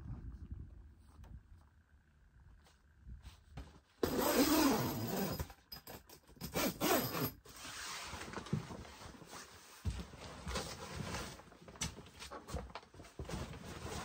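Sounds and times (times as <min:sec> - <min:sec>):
canvas tent flap rustling: 0:07.4 - 0:14.0.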